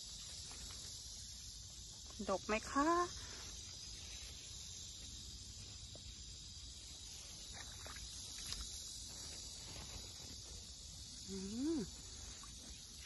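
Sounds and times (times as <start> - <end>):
insects chirring: 0.0 - 13.0
leaves rustling: 6.8 - 13.0.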